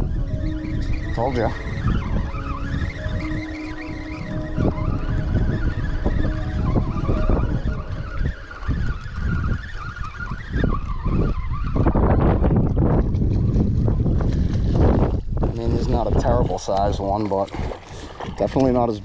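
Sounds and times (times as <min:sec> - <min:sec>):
fishing reel gears whining: 0:00.0 - 0:12.9
wind rumbling on microphone: 0:00.0 - 0:19.0.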